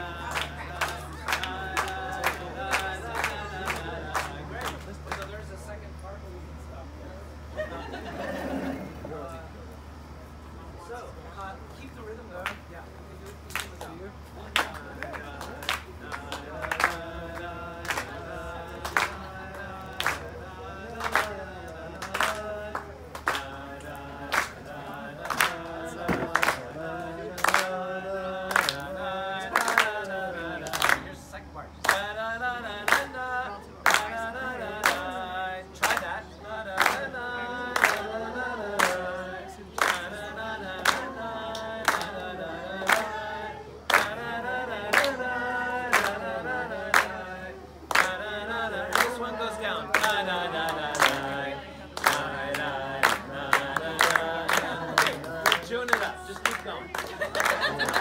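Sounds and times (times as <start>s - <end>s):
group of people singing: 0.0s - 5.1s, 14.4s - 58.0s
hands clapping on a beat: 0.1s - 5.4s, 12.4s - 12.7s, 13.3s - 26.7s, 27.3s - 27.9s, 28.5s - 31.1s, 31.8s - 32.1s, 32.7s - 33.2s, 33.8s - 35.2s, 35.8s - 37.1s, 37.7s - 39.1s, 39.8s - 43.2s, 43.9s - 47.2s, 47.9s - 51.4s, 52.0s - 58.0s.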